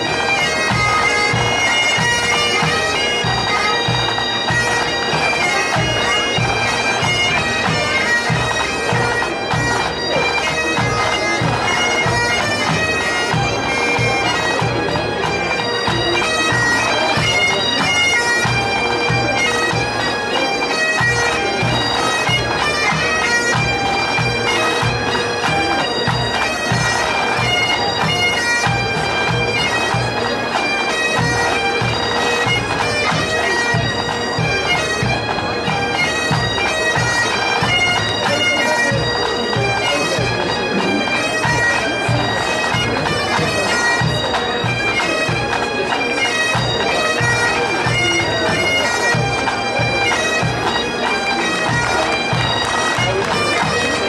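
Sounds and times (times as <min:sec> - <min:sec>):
bagpipes playing melody: 0:00.0 - 0:54.0
drums beating: 0:31.1 - 0:48.5.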